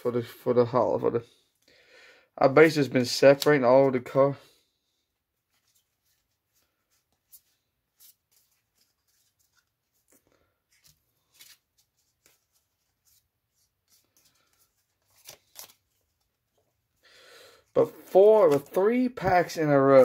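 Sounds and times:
trading cards tapping and sliding: 0:17.9 - 0:20.0.

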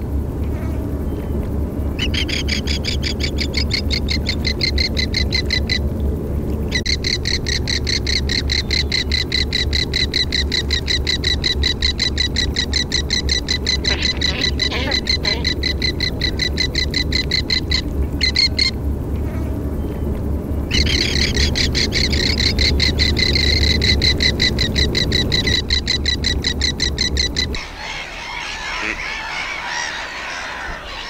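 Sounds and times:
steady low rumble: 0:00.0 - 0:31.0
bird chatter: 0:06.7 - 0:18.8, 0:20.7 - 0:31.0
bird piping rapid high notes: 0:06.8 - 0:18.7, 0:20.7 - 0:31.0.

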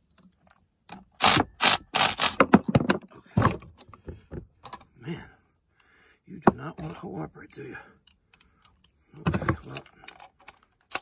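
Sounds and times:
metal clicks and clanks: 0:08.0 - 0:11.0.

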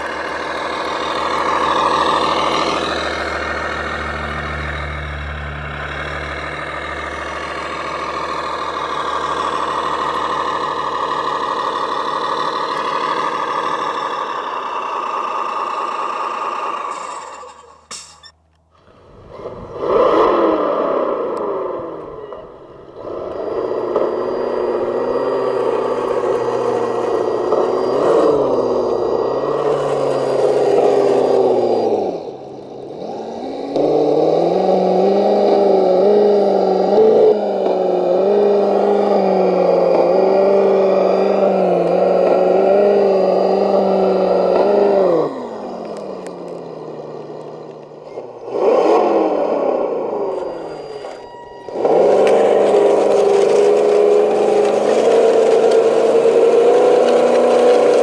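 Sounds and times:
rc truck motor drone: 0:00.0 - 0:58.0.

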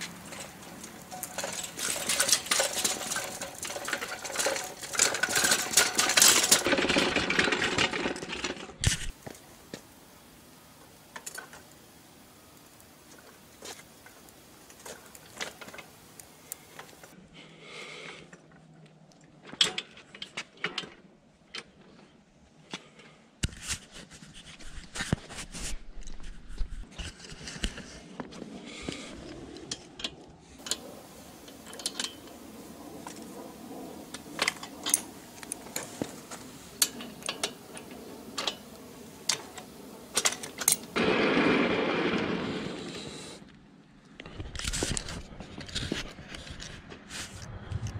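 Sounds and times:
carriage rumbling along steel rail: 0:00.0 - 0:09.2, 0:30.6 - 0:42.8
metal clicks and clanks: 0:00.0 - 0:09.2, 0:13.1 - 0:17.2, 0:19.4 - 0:21.8, 0:29.6 - 0:33.5, 0:34.1 - 0:41.0.

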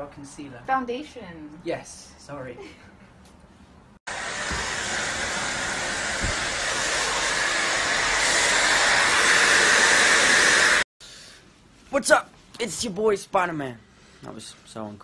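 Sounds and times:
hair dryer blowing air: 0:04.1 - 0:10.9.

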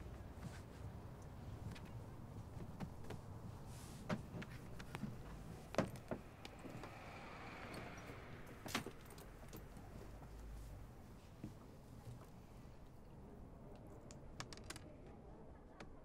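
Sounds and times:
soft rustle: 0:00.0 - 0:08.3.

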